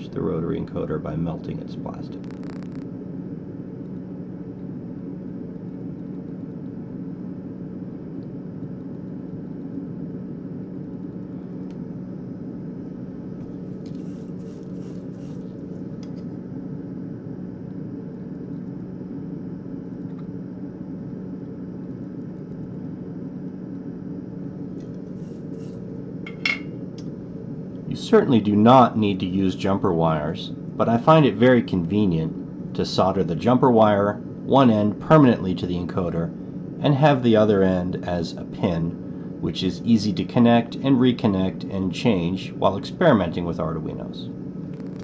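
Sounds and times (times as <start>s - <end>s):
constant rumbling background: 0.0s - 14.0s, 15.4s - 45.0s
steady low hum: 0.0s - 45.0s.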